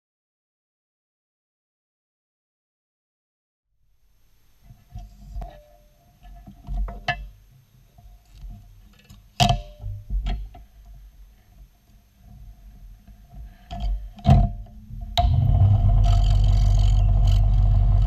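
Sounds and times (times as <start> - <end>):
low rumbling handling noise: 13.8 - 18.0.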